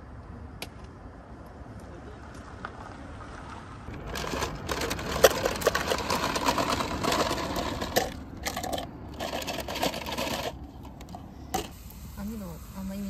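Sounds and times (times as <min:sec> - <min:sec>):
plastic cups clattering and clinking: 0:03.9 - 0:11.8.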